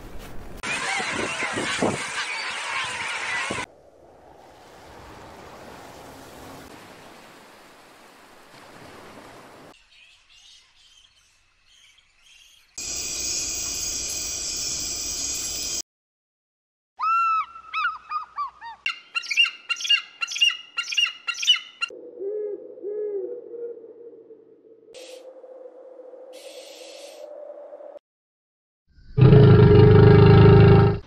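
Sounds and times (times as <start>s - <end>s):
eagles chittering calls: 17.0s - 21.9s
owl low hoots: 21.5s - 24.4s.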